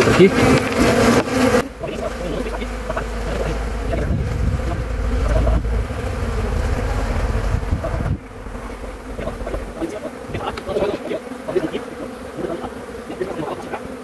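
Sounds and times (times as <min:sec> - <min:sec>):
bees buzzing: 0:00.0 - 0:14.0
low rumble: 0:01.6 - 0:10.3.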